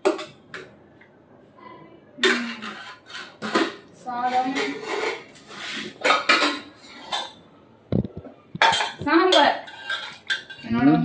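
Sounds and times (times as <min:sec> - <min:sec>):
pot and spoon clattering: 0:06.0 - 0:07.4, 0:08.6 - 0:10.7.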